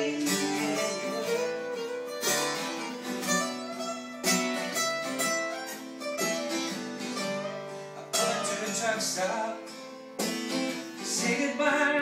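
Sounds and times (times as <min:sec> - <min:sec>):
acoustic guitars strumming chords: 0:00.0 - 0:12.0.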